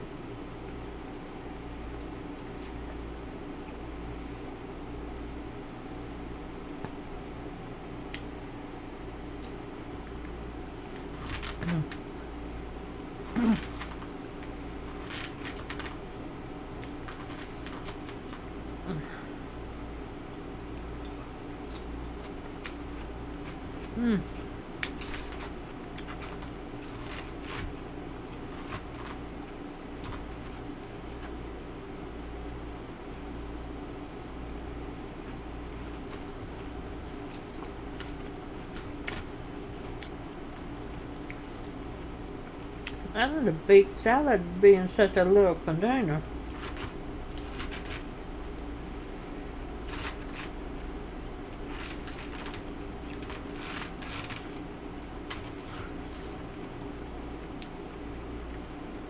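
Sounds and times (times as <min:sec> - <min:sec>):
low hum: 0:00.0 - 0:59.0
chewing: 0:09.3 - 0:12.0, 0:20.3 - 0:32.2, 0:34.4 - 0:43.0, 0:49.8 - 0:59.0.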